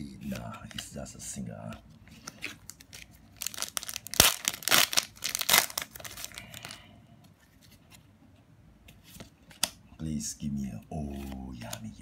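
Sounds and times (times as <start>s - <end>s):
foil wrapper crinkling: 2.2s - 6.8s.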